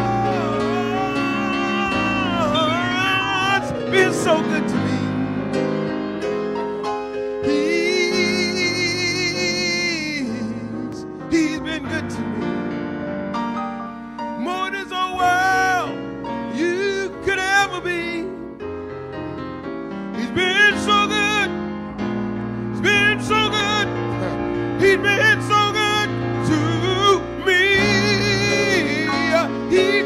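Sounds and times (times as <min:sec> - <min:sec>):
man singing gospel: 0:00.0 - 0:05.6, 0:07.4 - 0:12.7, 0:14.4 - 0:18.6, 0:20.1 - 0:21.6, 0:22.7 - 0:30.0
keyboard chords: 0:00.0 - 0:30.0.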